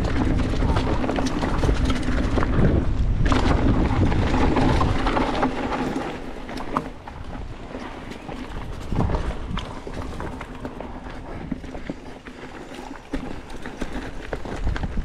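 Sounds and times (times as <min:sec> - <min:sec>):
wind buffeting microphone: 0:00.0 - 0:12.2, 0:13.1 - 0:15.0
bike rattling and knocking: 0:00.0 - 0:15.0
tyres on loose dirt: 0:00.0 - 0:15.0.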